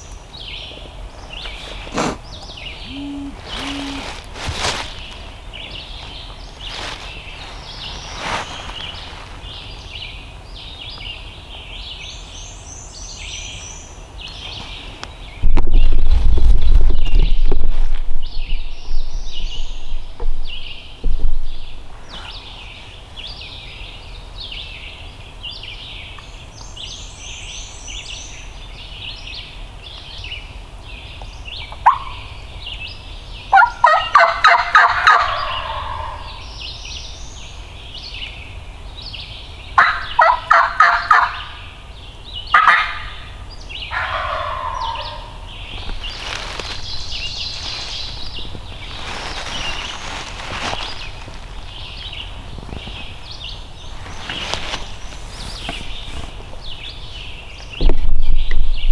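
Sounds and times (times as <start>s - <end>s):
songbirds chirping: 0.0s - 58.9s
turkey gobbling: 31.8s - 32.3s, 33.5s - 36.4s, 39.8s - 41.6s, 42.5s - 43.2s, 43.9s - 45.4s.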